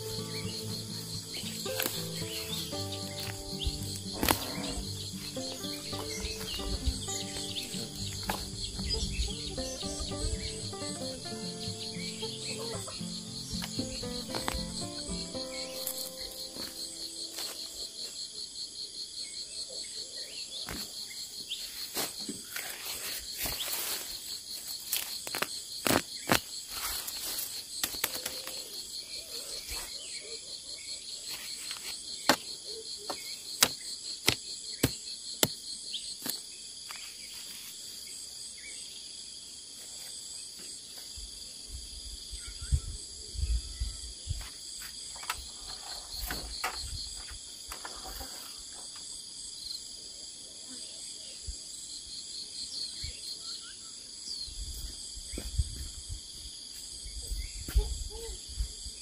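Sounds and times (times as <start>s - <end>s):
insects chirring: 0.0s - 59.0s
plant stems snapping and rustling: 1.4s - 4.6s, 13.6s - 14.7s, 24.9s - 28.7s.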